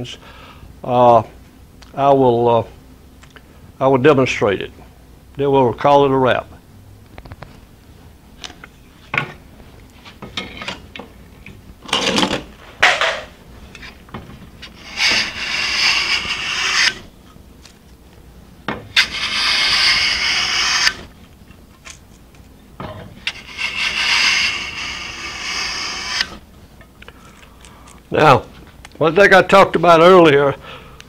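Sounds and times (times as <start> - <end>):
scraper plane scraping wood: 14.6 - 17.1, 18.8 - 21.1, 23.2 - 26.4.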